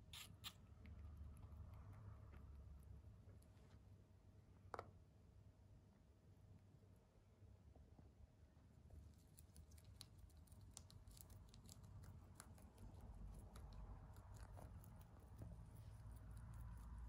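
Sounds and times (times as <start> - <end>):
rabbit chewing leaves: 8.9 - 17.0.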